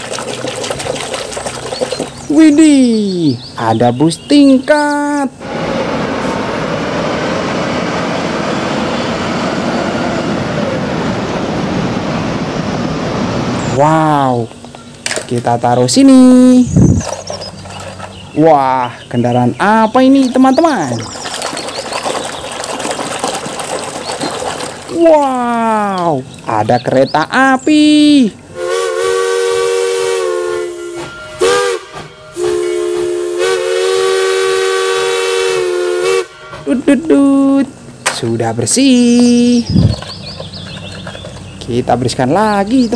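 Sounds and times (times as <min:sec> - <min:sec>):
city street traffic: 0:01.2 - 0:21.2, 0:35.2 - 0:42.9
bus driving past: 0:05.4 - 0:14.4
steam locomotive whistle: 0:28.5 - 0:36.8.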